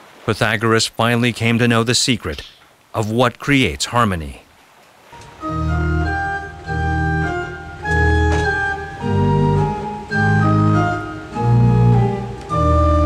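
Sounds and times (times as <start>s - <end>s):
sustained keyboard chords: 5.2s - 13.0s.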